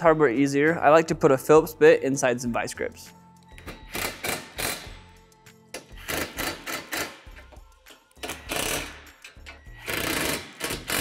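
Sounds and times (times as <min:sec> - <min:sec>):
background music: 0:00.0 - 0:11.0
cordless drill bursts: 0:09.8 - 0:11.0.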